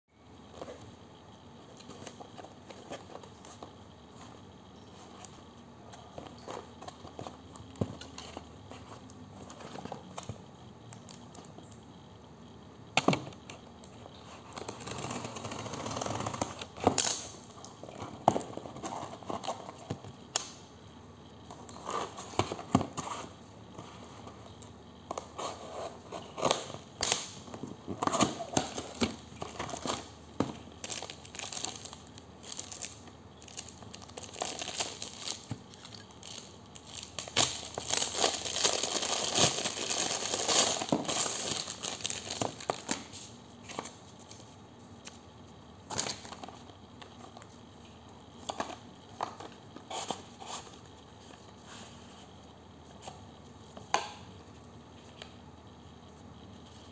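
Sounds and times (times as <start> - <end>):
cardboard and plastic packaging rustling: 1.6 - 10.4, 17.8 - 20.2, 21.4 - 54.0.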